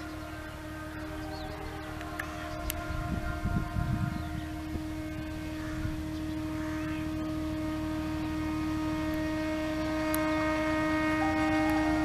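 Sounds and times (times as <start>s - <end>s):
diesel engine rumble: 0.0s - 12.0s
locomotive horn: 0.0s - 12.0s.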